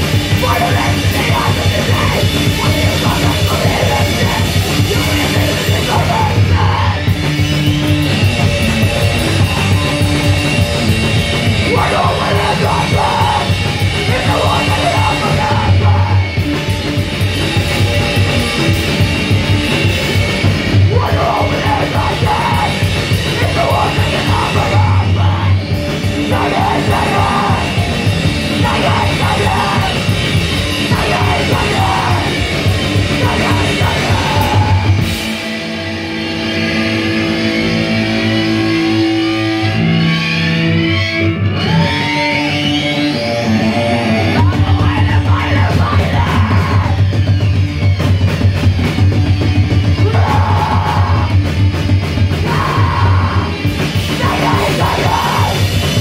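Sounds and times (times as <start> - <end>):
bending guitar notes: 0.0 - 45.8
heavy rock band playing: 0.0 - 56.0
person yelling vocals: 0.2 - 7.1, 11.6 - 16.3, 20.9 - 25.6, 28.6 - 30.1, 44.3 - 47.1, 52.4 - 55.7.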